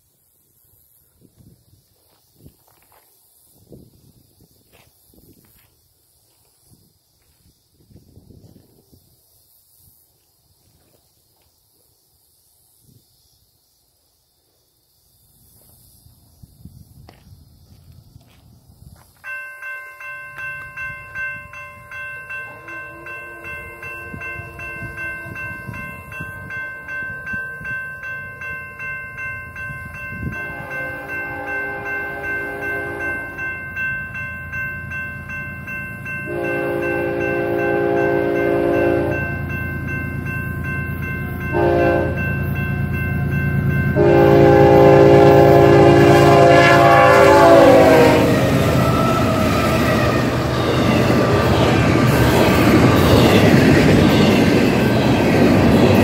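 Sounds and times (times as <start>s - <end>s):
crossing signal bell ringing: 19.2s - 56.0s
locomotive engine rumble: 19.8s - 56.0s
locomotive horn blasts: 22.3s - 27.6s, 30.2s - 33.5s, 36.2s - 39.6s, 41.3s - 42.5s, 43.2s - 51.4s.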